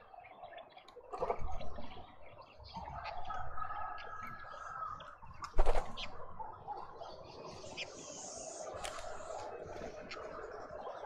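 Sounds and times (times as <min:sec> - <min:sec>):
faint bird chirps: 0:00.0 - 0:11.0
loud flutter of wings: 0:05.5 - 0:06.1.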